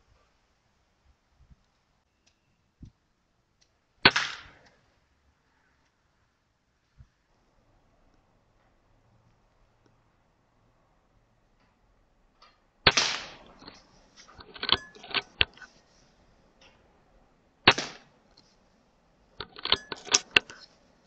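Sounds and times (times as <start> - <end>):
air rifle shot crack: 4.0 - 4.7, 12.8 - 13.8, 17.6 - 18.1
small clicks and knocks: 11.5 - 15.8, 16.6 - 16.9, 19.3 - 20.8.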